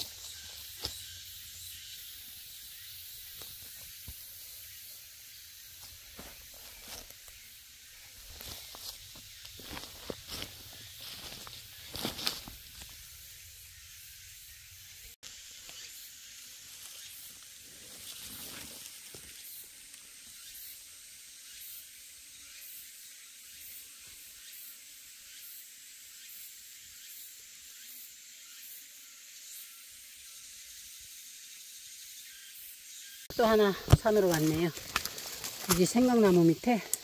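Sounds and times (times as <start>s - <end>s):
rustle on dry leaves: 0.0s - 14.0s, 15.2s - 20.7s, 33.3s - 37.0s
insects droning: 0.0s - 37.0s.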